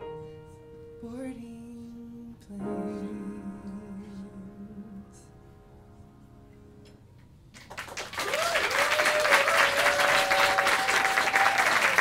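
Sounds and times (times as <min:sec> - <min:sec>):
audience applause: 0:07.6 - 0:12.0
people whooping and cheering: 0:08.1 - 0:12.0.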